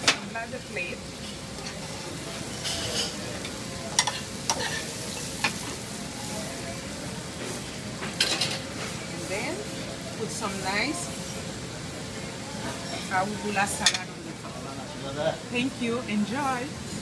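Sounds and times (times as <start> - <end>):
food sizzling in a skillet: 0.0 - 17.0
metal spoon scraping a pan: 4.0 - 5.6.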